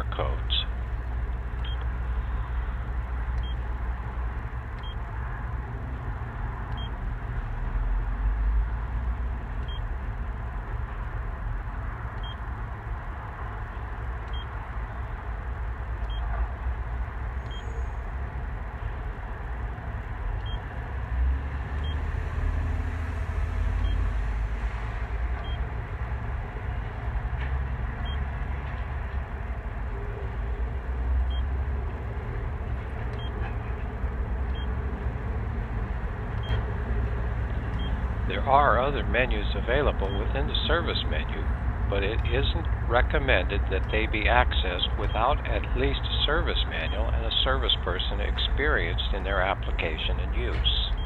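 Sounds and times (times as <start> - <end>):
keypad beeps: 1.6 - 1.9, 3.4 - 3.6, 6.7 - 7.0, 9.6 - 9.8, 12.2 - 12.4, 14.3 - 14.6, 36.4 - 36.6.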